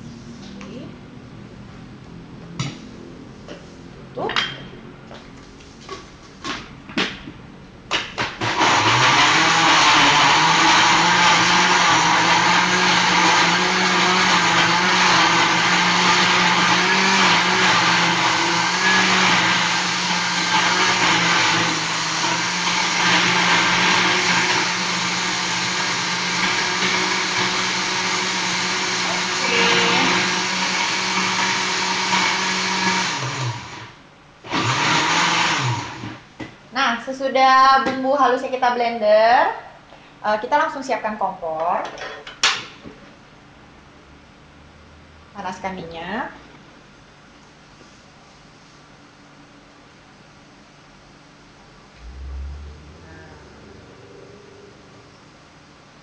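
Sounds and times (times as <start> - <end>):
blender grinding: 8.0 - 36.2.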